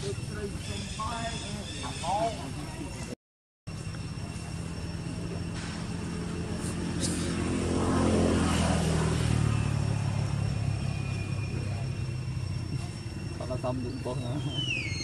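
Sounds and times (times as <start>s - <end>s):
motor engine passing by: 4.1s - 15.0s.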